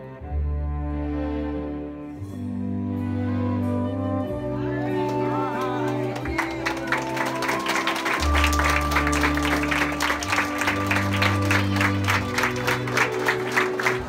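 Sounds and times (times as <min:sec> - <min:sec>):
music with long held chords: 0:00.0 - 0:14.0
crowd applauding: 0:04.8 - 0:14.0.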